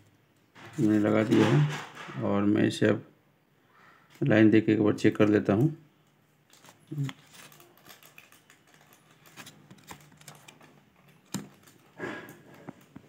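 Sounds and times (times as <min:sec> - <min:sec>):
circuit board being handled: 0:06.5 - 0:12.0.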